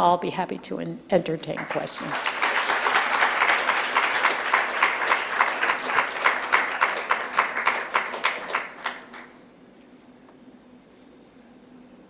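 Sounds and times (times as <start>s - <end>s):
audience applauding: 1.6s - 9.4s.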